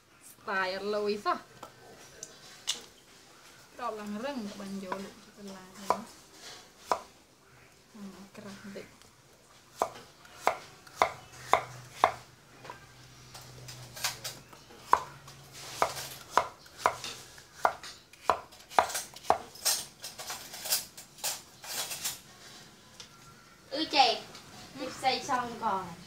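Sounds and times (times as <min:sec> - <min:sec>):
cleaver chopping on wooden board: 0:17.6 - 0:19.4.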